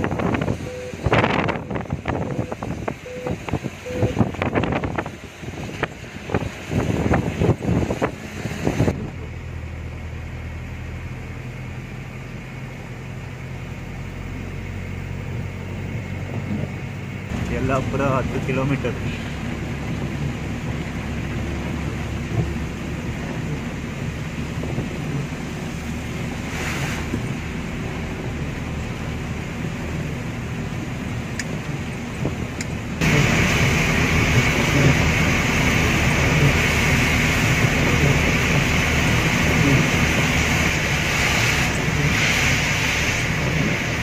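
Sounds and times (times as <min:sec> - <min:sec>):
truck cab engine and road noise: 0:00.0 - 0:44.0
hiss: 0:41.0 - 0:43.6.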